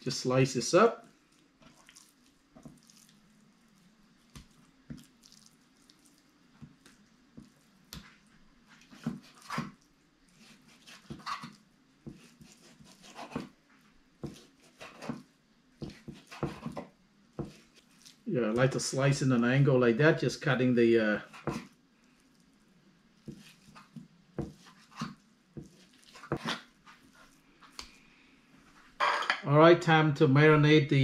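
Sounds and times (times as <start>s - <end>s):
faint steady hum: 0.0s - 31.0s
knife slicing meat on board: 10.4s - 13.5s, 14.2s - 18.1s, 21.2s - 21.8s, 23.2s - 27.0s.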